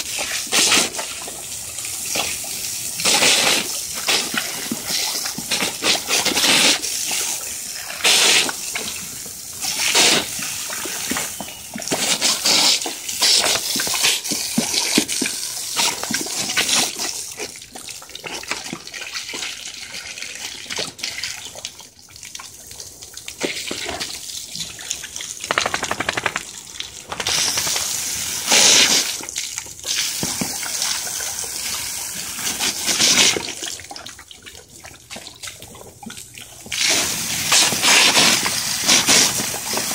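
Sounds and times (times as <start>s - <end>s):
hose spray on concrete: 0.0s - 1.2s, 2.0s - 17.2s, 27.2s - 29.3s, 36.8s - 39.9s
water splashing bursts: 0.0s - 19.4s, 20.6s - 34.1s.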